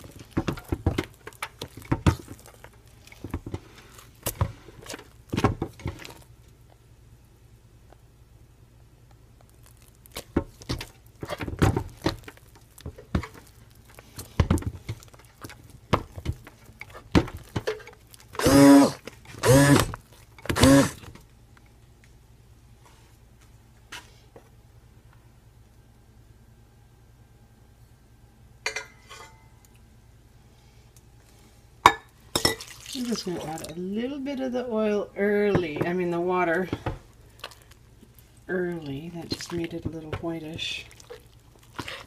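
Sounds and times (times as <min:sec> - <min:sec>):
blender motor hum: 0:18.4 - 0:19.9, 0:20.5 - 0:21.0.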